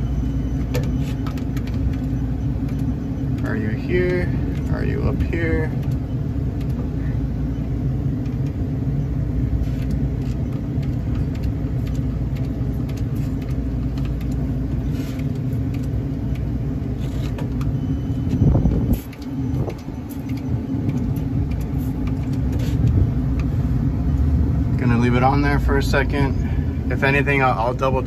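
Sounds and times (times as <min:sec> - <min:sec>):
steady low rumble: 0:00.0 - 0:28.0.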